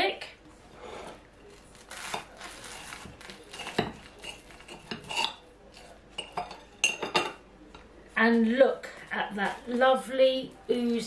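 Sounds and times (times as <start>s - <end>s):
knife cutting toasted sandwich: 1.0s - 5.9s
knife scraping ceramic plate: 1.9s - 6.6s.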